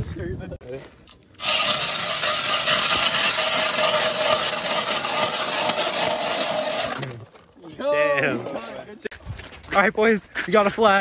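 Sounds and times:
ice auger scraping ice: 1.4 - 7.3.

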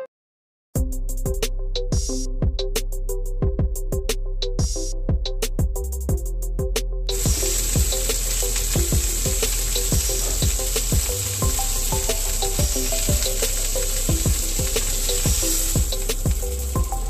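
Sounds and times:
background music with steady beat: 0.8 - 17.0
steak sizzling in frying pan: 7.2 - 16.7.

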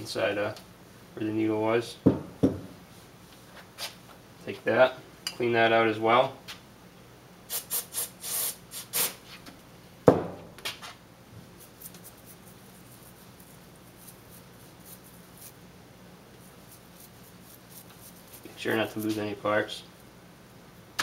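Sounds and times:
aerosol spray hissing: 7.5 - 9.2
toothbrush scrubbing metal: 11.6 - 15.6, 16.5 - 19.3.

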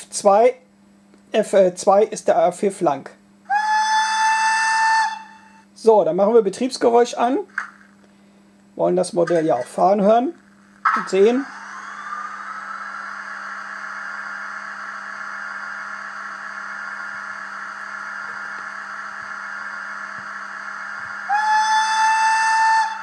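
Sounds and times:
electric hum with whine: 0.0 - 23.0
model locomotive whistle: 3.5 - 5.7, 21.1 - 23.0.

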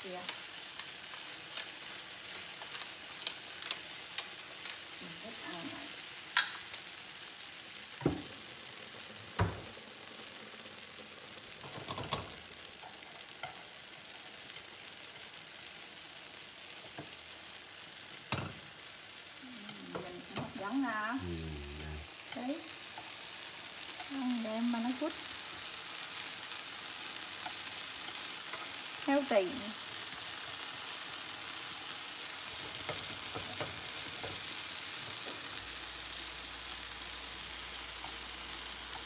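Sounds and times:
sauce sizzling in a frying pan: 0.0 - 39.0
person's voice: 19.4 - 22.7
chopsticks and spatula knocking pan: 32.6 - 34.4.

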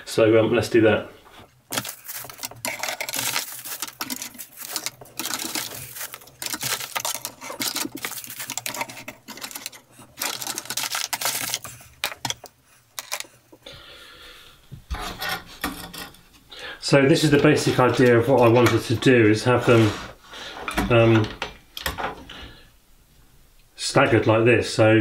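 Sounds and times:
plastic wrapping crinkling: 1.4 - 13.7.

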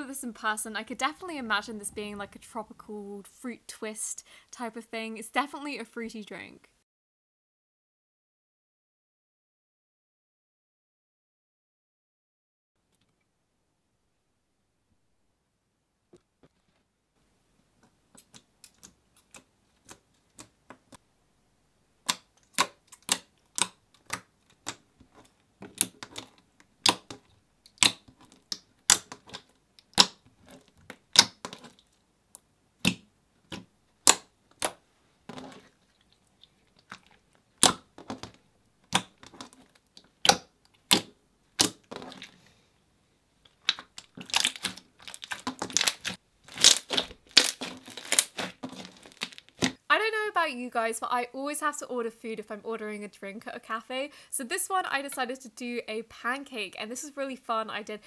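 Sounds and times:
slime clicking and popping: 22.0 - 24.8, 25.7 - 30.2, 30.9 - 31.7, 32.8 - 34.8, 37.6 - 39.4, 40.0 - 41.8, 43.5 - 49.8.

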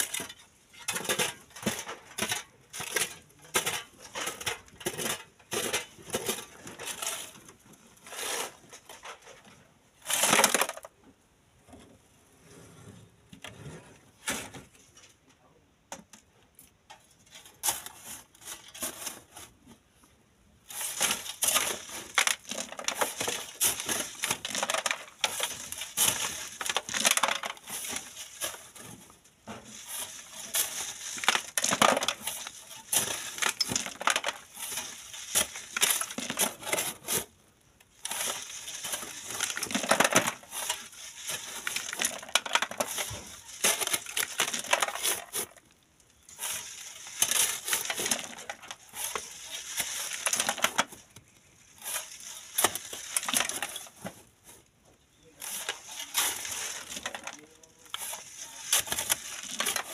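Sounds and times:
shovels scraping gravelly sand: 8.0 - 8.9, 17.4 - 19.6, 20.6 - 54.5, 55.2 - 59.9.

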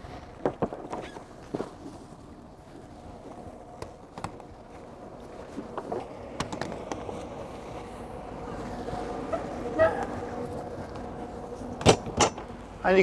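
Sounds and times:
footsteps on boat deck: 0.4 - 7.8
boat engines idling: 1.3 - 13.0.

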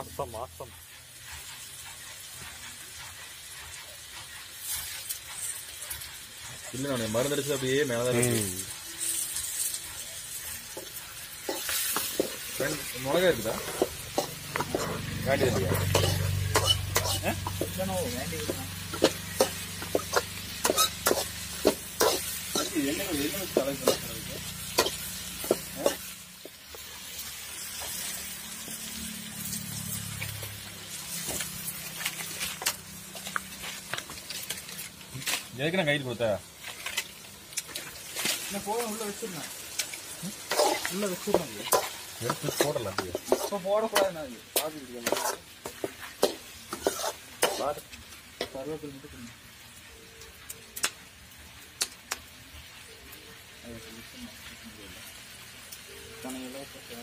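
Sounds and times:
onions and tomatoes sizzling: 0.0 - 57.0
ladle scraping metal pan: 11.4 - 26.1, 40.4 - 47.8.

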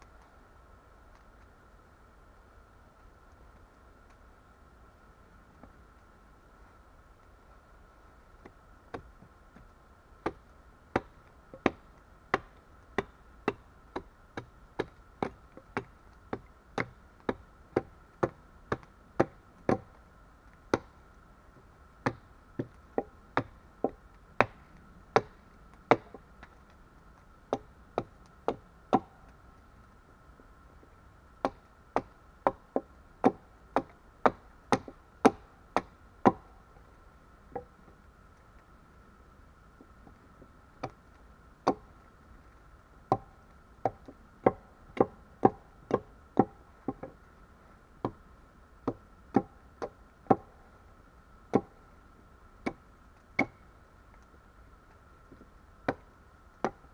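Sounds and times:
hatchet chopping log: 8.4 - 9.1, 10.2 - 20.0, 20.7 - 21.0, 22.0 - 26.2, 27.5 - 29.3, 31.4 - 36.5, 40.8 - 41.0, 41.6 - 41.9, 43.1 - 47.2, 48.8 - 50.5, 51.5 - 51.8, 52.6 - 52.8, 53.4 - 53.6, 55.8 - 56.0, 56.6 - 56.8.

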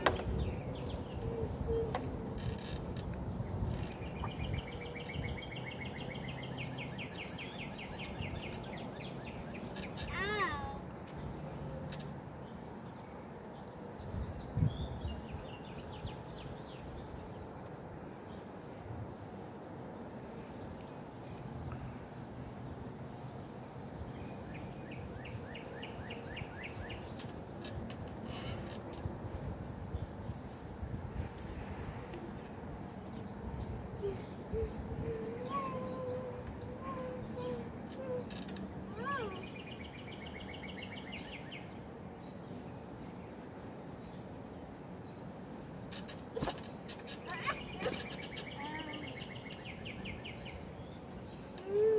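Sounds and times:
bird chirping: 0.0 - 10.2, 24.2 - 27.8, 32.6 - 51.8
low outdoor background noise: 0.0 - 51.9
low outdoor rumble: 27.0 - 39.8.

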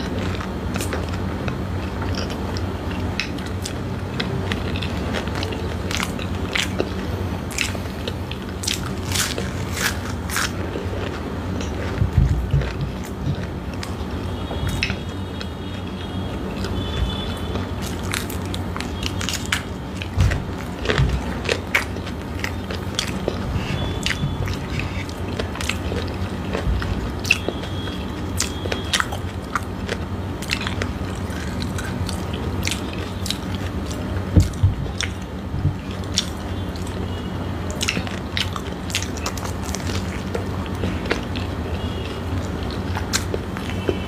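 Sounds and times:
crunchy biting and chewing: 0.0 - 44.0
low steady hum: 0.0 - 44.0.

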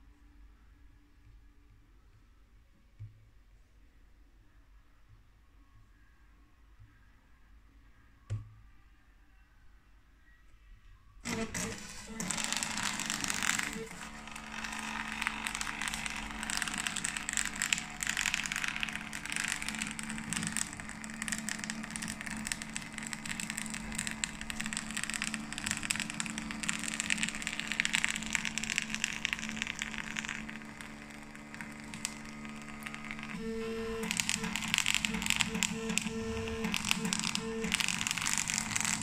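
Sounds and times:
printer motor humming: 11.3 - 39.0.

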